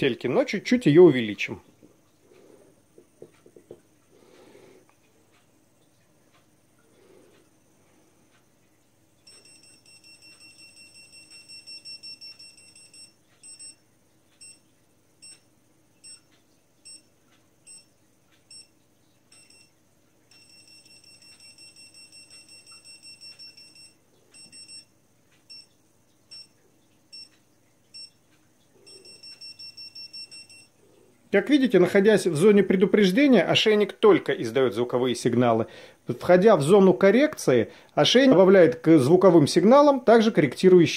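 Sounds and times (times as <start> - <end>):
rapid high beeps: 9.3 - 13.8, 19.3 - 19.7, 20.3 - 24.9, 28.9 - 30.7
slow single beeps: 9.3 - 13.8, 14.4 - 14.6, 17.7 - 17.9, 18.5 - 24.9, 25.5 - 25.7, 26.3 - 28.2, 28.9 - 30.8.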